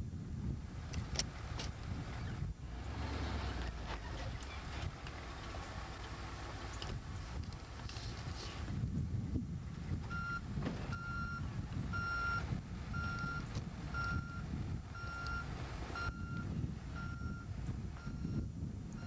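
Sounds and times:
engine rumble: 0.0 - 19.0
reversing alarm beeping: 10.1 - 19.0.

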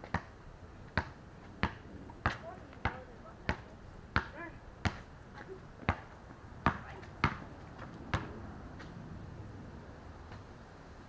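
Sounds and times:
basketball bouncing on concrete: 0.0 - 0.3, 0.9 - 8.4.

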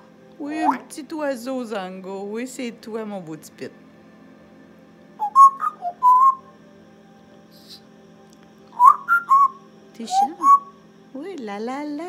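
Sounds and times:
parrot whistling: 5.2 - 6.5, 8.8 - 10.7.

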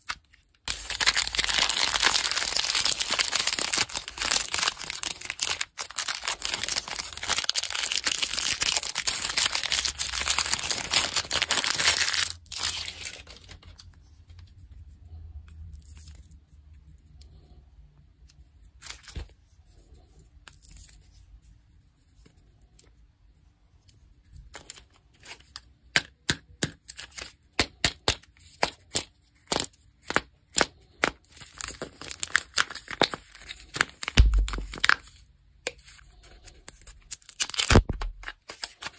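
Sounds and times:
foil seal peeling crackles: 0.0 - 13.6
wrapper crinkling and tearing: 0.0 - 13.8, 31.2 - 35.2, 36.5 - 38.9.

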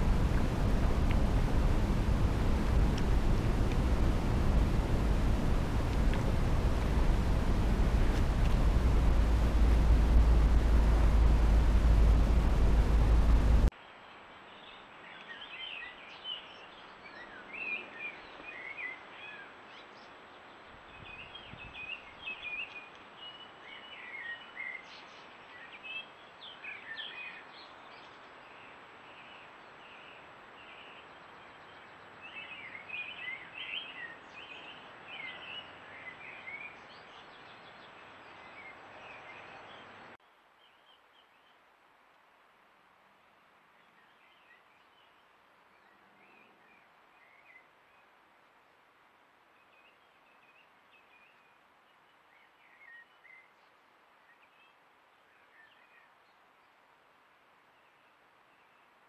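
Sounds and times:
steady hiss: 0.0 - 13.7
songbirds chirping: 0.0 - 42.2, 43.4 - 59.0.

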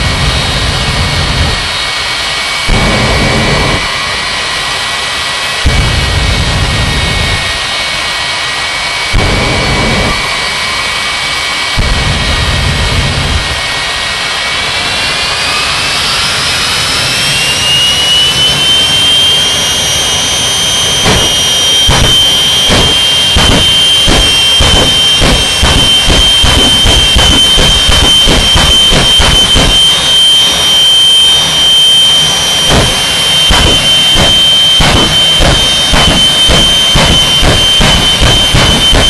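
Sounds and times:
afterburner blasts: 0.0 - 15.2, 19.4 - 39.0
turbine engines whining: 0.0 - 39.0.

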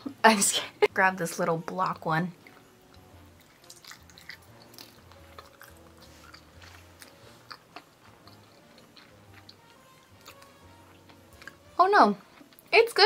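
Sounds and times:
person chewing: 2.4 - 12.7.

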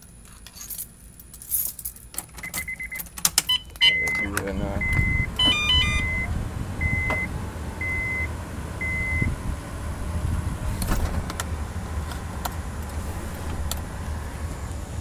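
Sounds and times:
low steady rumble: 0.0 - 15.0
short electronic beeps: 2.4 - 9.3.

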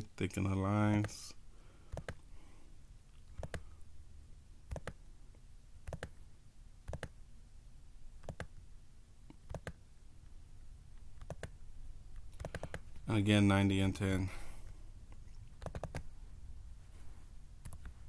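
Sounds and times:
faint low hum: 0.0 - 18.0
computer mouse clicking: 1.9 - 2.2, 3.2 - 3.7, 4.7 - 5.0, 5.8 - 6.2, 6.9 - 7.2, 8.2 - 8.6, 9.3 - 9.8, 11.2 - 11.6, 12.2 - 13.0, 15.2 - 16.1, 17.6 - 18.0.

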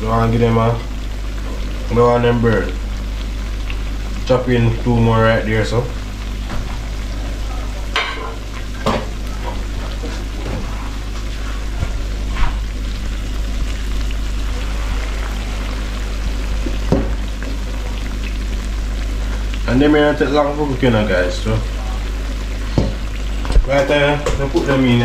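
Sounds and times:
fritters sizzling in hot oil: 0.0 - 25.0.

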